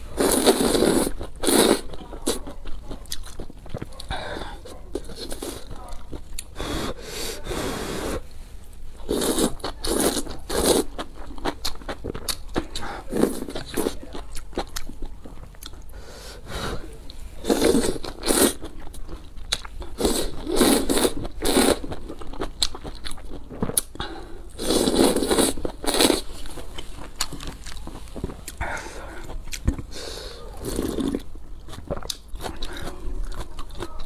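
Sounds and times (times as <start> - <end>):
noodles slurped: 0.2 - 1.9, 9.0 - 11.0, 19.9 - 22.0, 24.5 - 26.3
chewing: 0.2 - 6.7, 9.0 - 16.0, 17.1 - 34.0.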